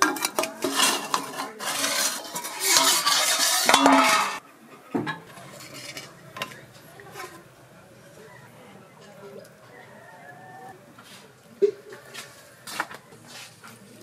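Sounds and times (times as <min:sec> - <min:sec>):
steel cookware clattering: 0:00.0 - 0:04.4, 0:05.0 - 0:07.4.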